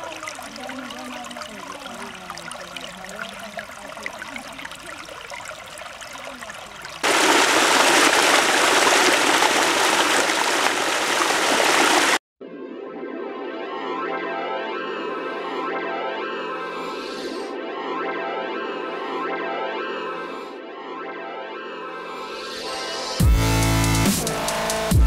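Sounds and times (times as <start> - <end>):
stream gurgling over rocks: 0.0 - 12.2
water pouring down cascade: 0.0 - 12.2.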